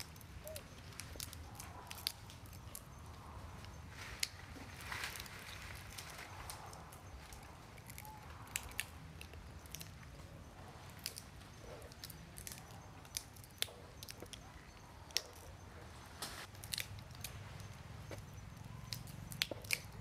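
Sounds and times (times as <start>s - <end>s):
monkeys cracking peanut shells: 0.0s - 2.9s, 5.8s - 10.2s, 10.8s - 15.6s, 16.5s - 20.0s
chewing: 0.0s - 4.4s, 5.8s - 15.8s, 16.4s - 20.0s.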